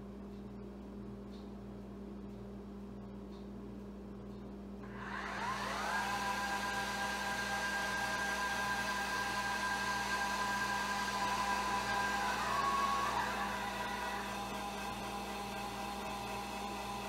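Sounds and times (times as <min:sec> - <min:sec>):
telescope motors whining: 0:05.0 - 0:17.0.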